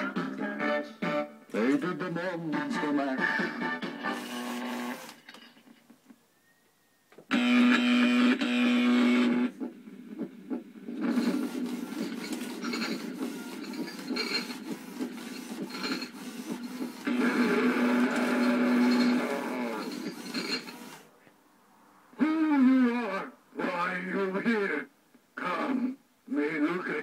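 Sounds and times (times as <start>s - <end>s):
instrumental song through small speaker: 0.0s - 4.7s
toy motors whirring and clicking: 11.1s - 21.1s.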